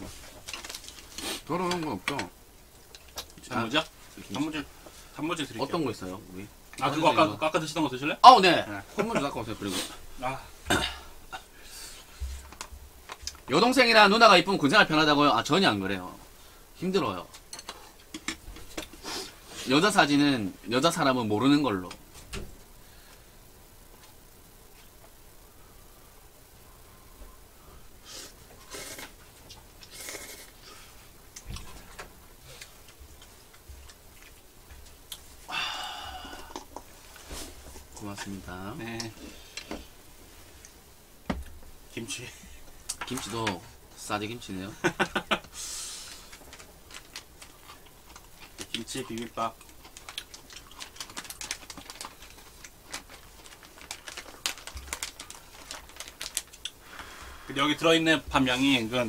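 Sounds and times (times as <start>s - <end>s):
noodles slurped: 29.8s - 30.6s.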